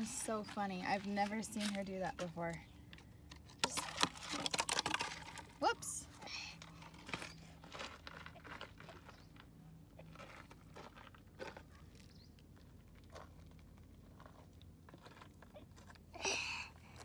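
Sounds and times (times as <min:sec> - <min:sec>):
gravel crunching underfoot: 0:03.8 - 0:17.0.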